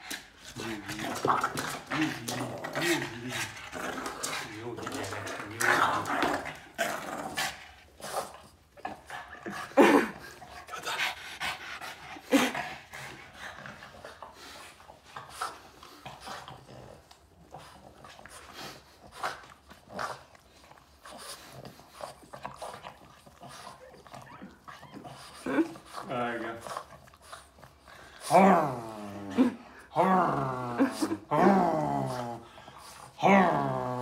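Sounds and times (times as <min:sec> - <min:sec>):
dog licking: 0:13.2 - 0:28.2.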